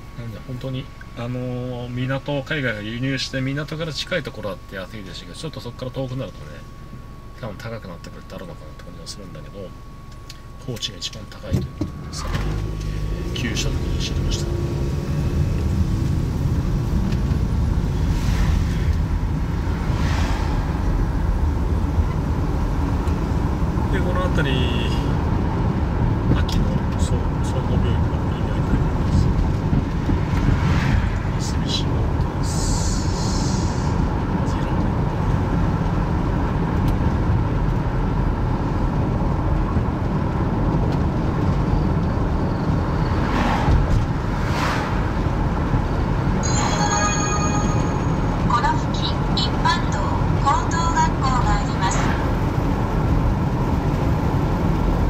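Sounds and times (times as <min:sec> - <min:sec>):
car road and engine rumble: 0:00.0 - 0:55.0
passing traffic whooshes: 0:12.4 - 0:24.0, 0:28.8 - 0:37.4, 0:41.8 - 0:49.3, 0:51.8 - 0:55.0.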